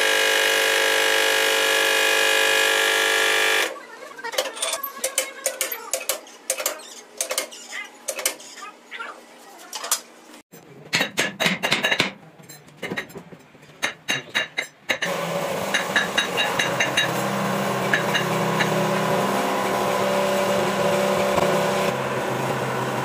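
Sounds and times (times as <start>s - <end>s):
steady machine noise: 0.0s - 3.8s, 15.0s - 23.0s.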